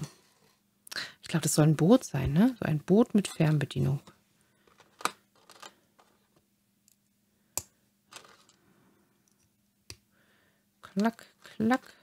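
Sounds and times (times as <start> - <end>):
plastic parts rustling: 3.2 - 6.4, 8.1 - 8.6.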